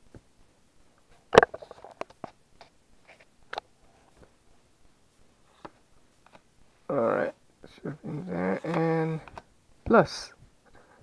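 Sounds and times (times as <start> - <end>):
cards being shuffled: 8.2 - 9.5.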